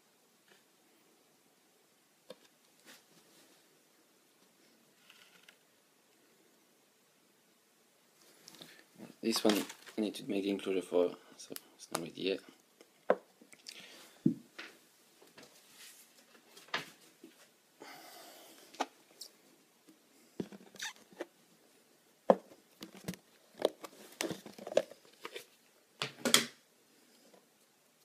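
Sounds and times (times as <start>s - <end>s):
packing rustling: 9.3s - 10.0s.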